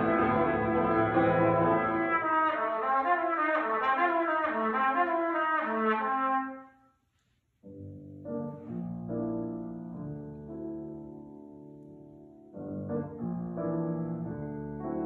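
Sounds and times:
piano playing: 0.0 - 5.0, 7.6 - 15.0
trumpet playing quick notes: 0.0 - 6.8.

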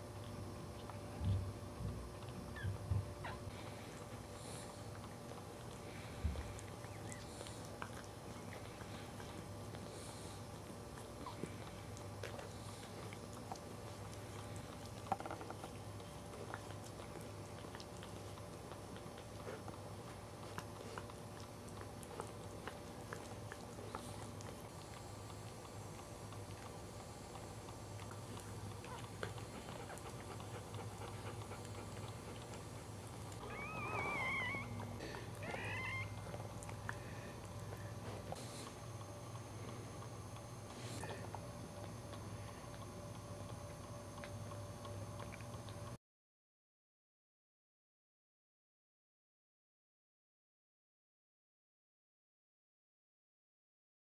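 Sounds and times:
dog licking puppy: 0.0 - 46.0
low steady hum: 0.0 - 46.0
puppy squealing: 2.5 - 3.4, 33.4 - 36.4.

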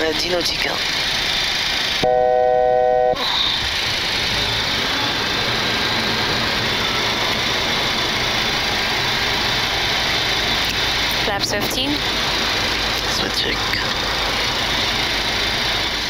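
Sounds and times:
jet engine and airflow rush: 0.0 - 16.0
steady electronic tone: 2.0 - 3.2.

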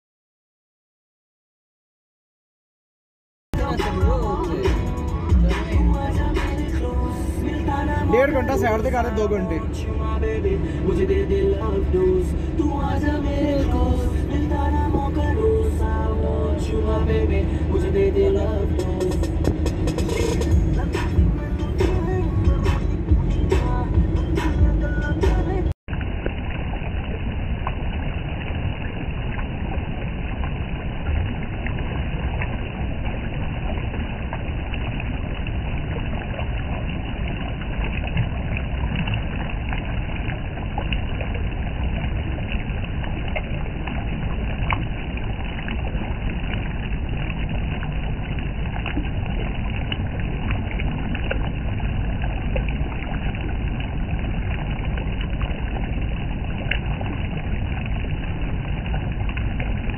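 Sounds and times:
river rushing over rocks: 3.6 - 26.8.

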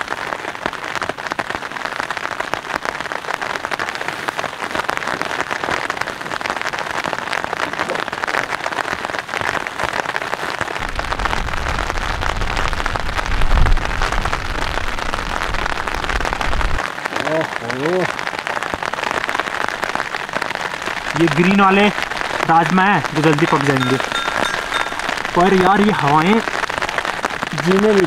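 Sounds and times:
rain on tent fabric: 0.0 - 28.0.

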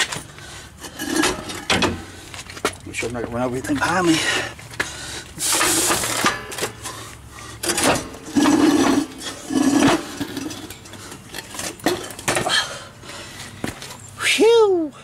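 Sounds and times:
metal clanking and scraping: 0.0 - 3.1, 5.4 - 12.7.

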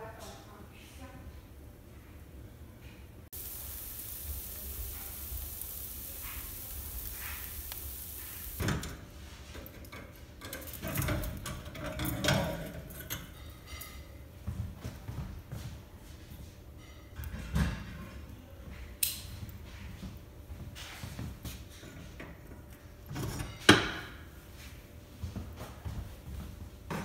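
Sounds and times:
meat sizzling on grill: 3.3 - 8.9
metal grill grate clanking: 3.4 - 13.9.

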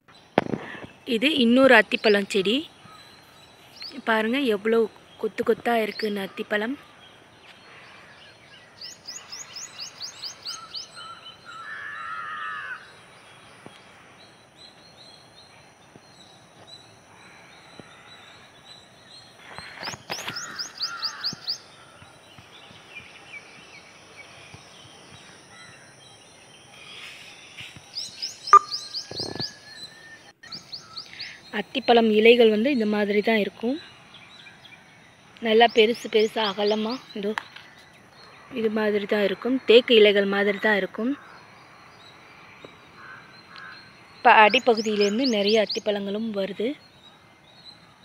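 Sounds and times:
birds calling: 0.0 - 48.0
harsh caw-like call: 11.6 - 12.9, 43.0 - 43.9.

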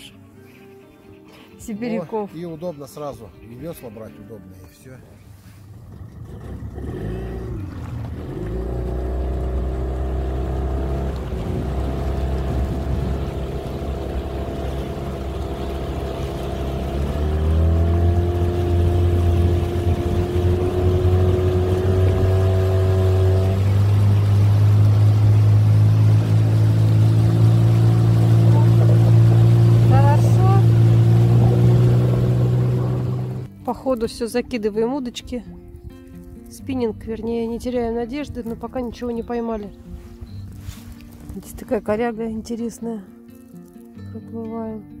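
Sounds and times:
outboard motor running: 5.3 - 33.5.

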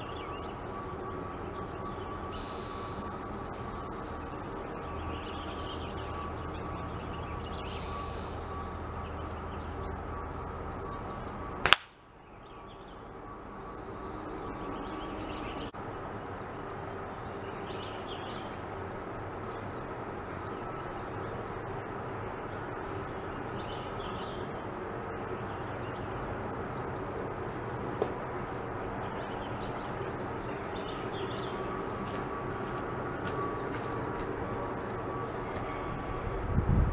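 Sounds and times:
faint bird chirps: 0.0 - 11.4
outdoor background noise: 0.0 - 36.9
air rifle shot crack: 11.6 - 12.0.

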